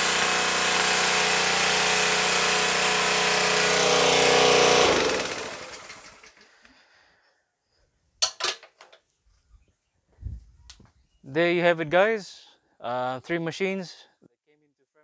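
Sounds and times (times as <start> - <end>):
engine running down: 0.0 - 6.4
pressure washer engine running: 0.0 - 6.4.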